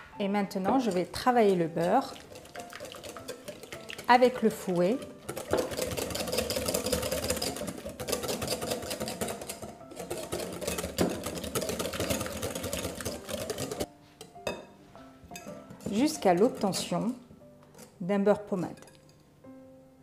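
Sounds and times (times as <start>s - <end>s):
whisk rattling against glass bowl: 0.8s - 13.9s.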